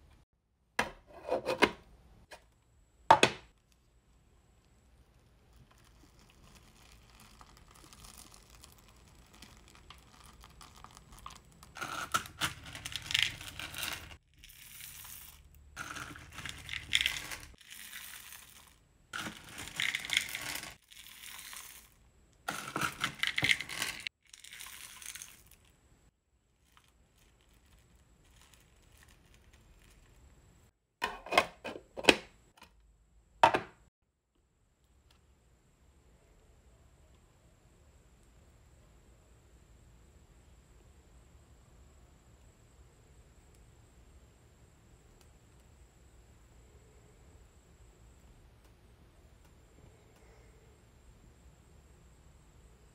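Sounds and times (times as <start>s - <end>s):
wax beads rattling: 5.3s - 25.8s, 26.5s - 30.3s
stirring rustle: 5.4s - 25.7s.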